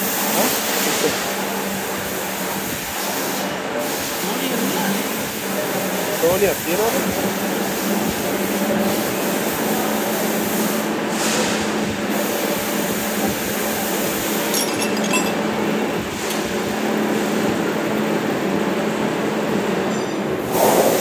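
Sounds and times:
light metallic clinks: 14.5s - 15.6s.

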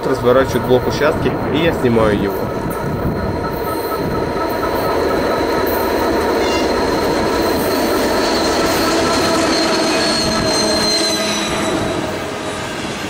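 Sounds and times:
diesel locomotive engine drone: 0.0s - 13.0s
high whine: 0.0s - 13.0s.

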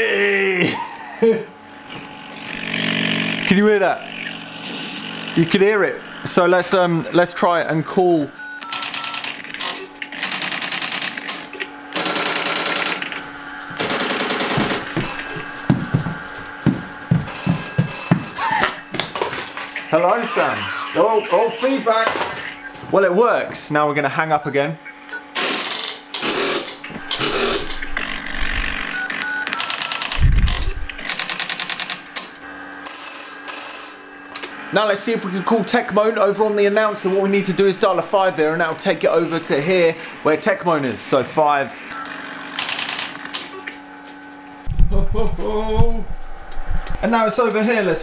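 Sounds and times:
steady high-pitched tone: 14.4s - 21.9s
bell-like ringing: 15.0s - 20.3s.

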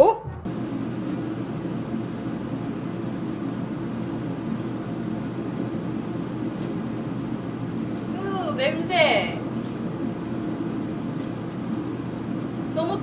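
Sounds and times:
range hood exhaust fan humming: 0.0s - 13.0s.

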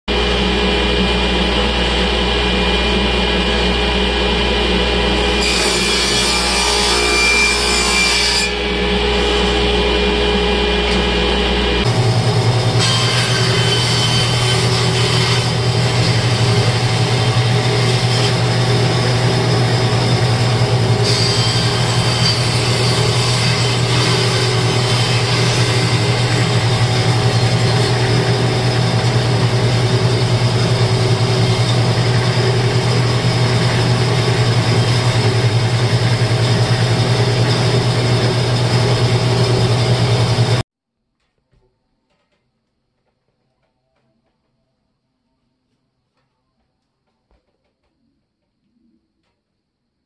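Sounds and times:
bandsaw cutting wood: 4.8s - 40.6s
table saw ripping wood: 5.0s - 40.6s.

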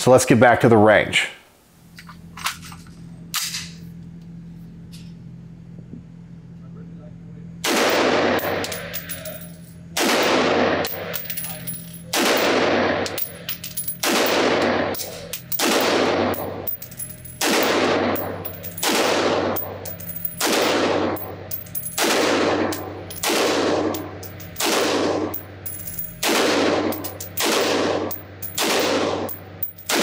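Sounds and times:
gunshots echoing indoors: 7.6s - 8.6s, 10.0s - 11.2s, 12.1s - 13.0s, 14.0s - 16.6s, 17.4s - 19.8s, 20.4s - 30.0s.

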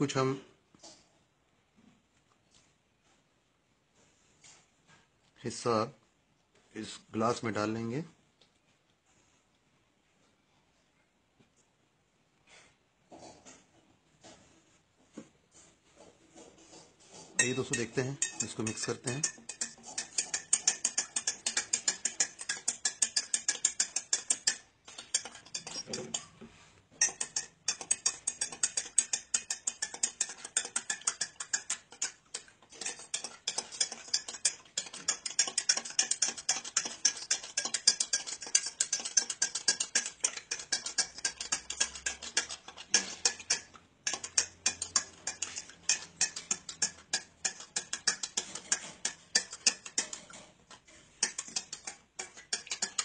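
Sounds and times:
spoon clinking in glass: 17.4s - 26.2s, 27.0s - 50.1s, 51.2s - 53.0s.

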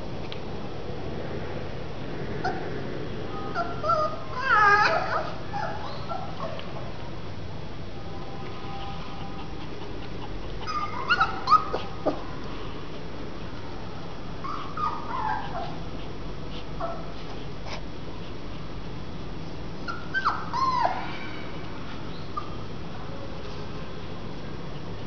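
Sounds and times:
puppies whimpering: 3.6s - 6.5s, 9.4s - 12.2s, 14.4s - 15.9s, 19.9s - 21.1s.

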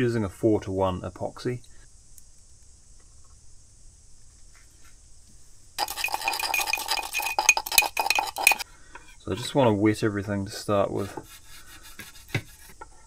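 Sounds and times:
stirrer clinking on glass jar: 5.8s - 8.6s.

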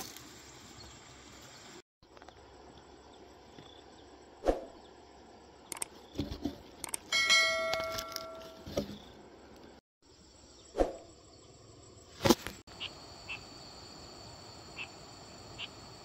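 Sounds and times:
bell-like metallic ring: 7.1s - 8.7s.

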